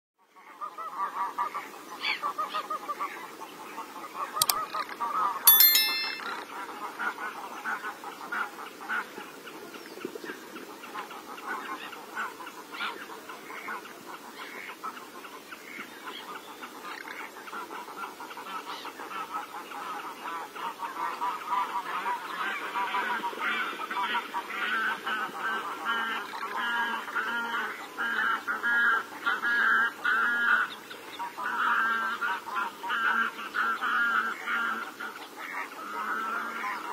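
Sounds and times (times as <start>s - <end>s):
sharp ringing sound: 5.5s - 6.4s
flock of ducks calling: 11.2s - 36.9s.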